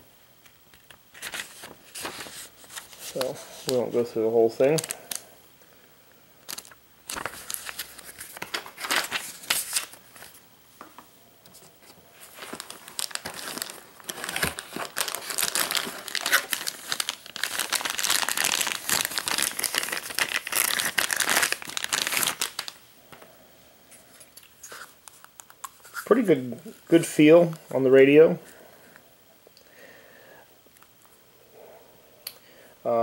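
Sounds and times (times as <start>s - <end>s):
plastic bag crinkling: 1.1s - 5.2s, 6.4s - 10.4s, 12.1s - 22.8s.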